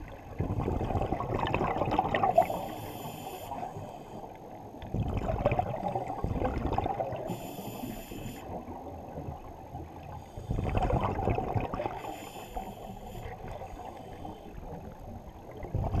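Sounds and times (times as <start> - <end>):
exhaled bubbles rushing: 0.0 - 2.6, 4.9 - 7.3, 10.5 - 12.1, 14.8 - 16.0
regulator inhalation hiss: 2.4 - 4.2, 7.3 - 8.4, 12.0 - 14.5.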